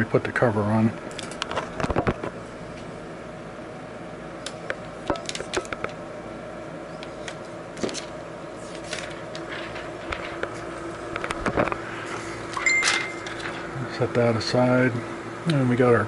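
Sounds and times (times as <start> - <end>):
plastic film rustle: 7.8 - 10.7.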